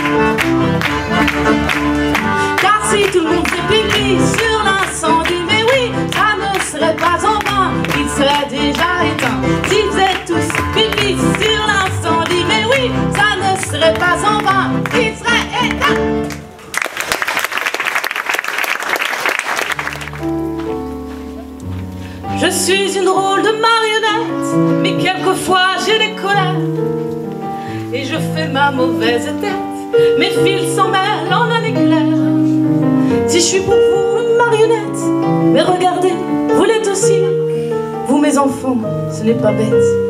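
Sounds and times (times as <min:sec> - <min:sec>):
double bass: 0:00.0 - 0:16.2
audience applauding: 0:00.0 - 0:20.6.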